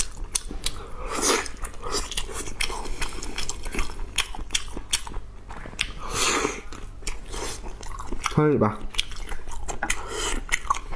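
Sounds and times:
wet chewing and lip-smacking: 0:00.0 - 0:10.9.

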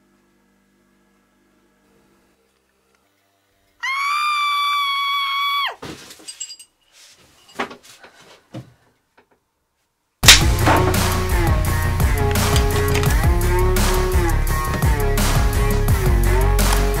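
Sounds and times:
small metal parts clinking: 0:06.2 - 0:06.8, 0:12.2 - 0:13.2.

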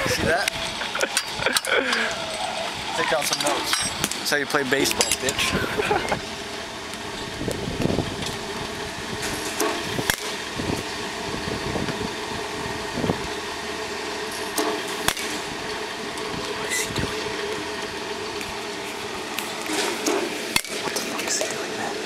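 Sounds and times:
mechanical hum: 0:00.0 - 0:22.0
baseballs striking: 0:14.5 - 0:15.4.

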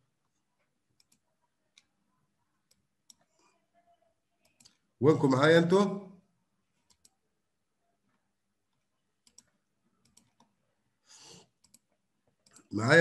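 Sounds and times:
faint clicks: 0:11.6 - 0:12.7.

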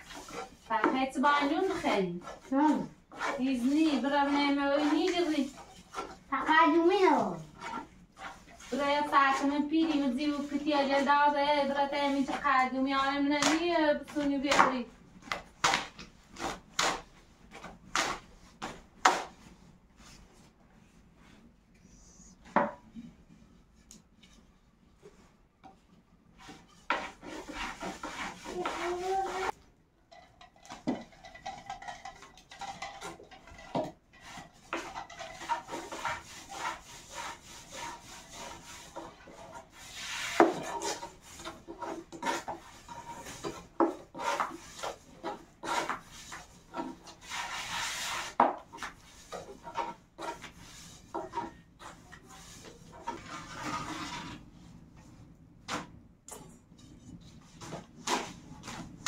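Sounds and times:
rasping strokes: 0:00.0 - 0:10.6, 0:34.2 - 0:48.4
scraping and rubbing strokes: 0:00.0 - 0:13.2, 0:23.2 - 0:29.6, 0:32.6 - 0:54.8.

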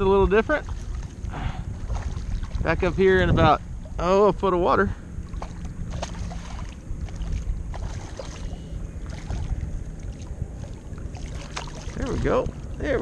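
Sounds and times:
water sloshing around kayak: 0:00.0 - 0:13.0
wind buffeting microphone: 0:00.0 - 0:13.0
small splashes: 0:00.5 - 0:02.8, 0:05.2 - 0:13.0.

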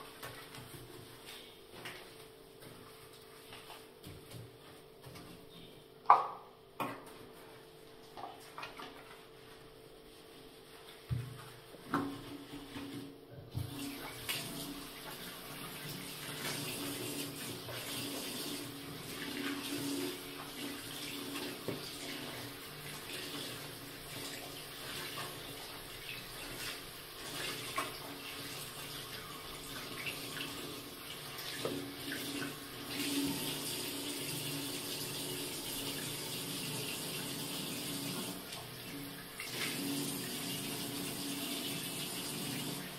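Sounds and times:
tap water splashing into sink: 0:20.4 - 0:22.5, 0:31.4 - 0:33.2.

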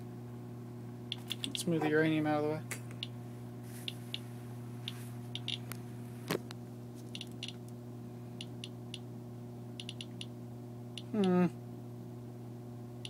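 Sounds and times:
geiger counter clicking: 0:01.1 - 0:01.6, 0:05.4 - 0:05.7, 0:07.1 - 0:07.6, 0:09.8 - 0:10.3.

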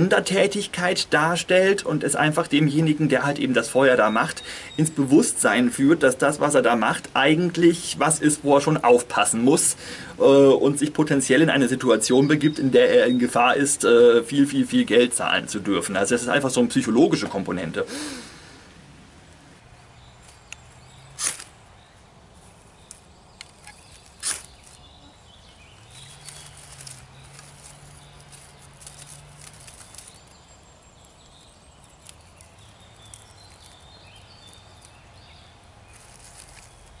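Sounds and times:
sharp snaps: 0:20.5 - 0:21.6, 0:22.9 - 0:24.8
small fire crackling: 0:22.3 - 0:37.0.

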